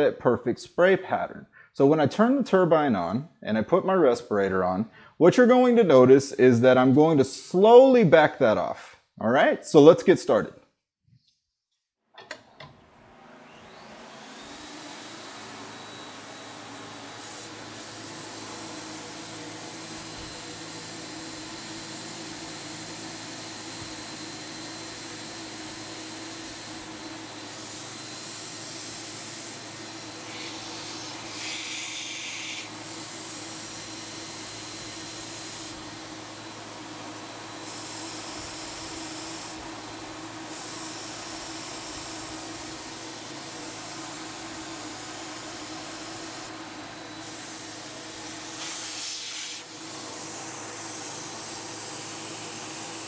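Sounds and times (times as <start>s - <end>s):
spray gun hissing: 17.1s - 19.8s, 30.2s - 32.9s, 47.2s - 53.0s.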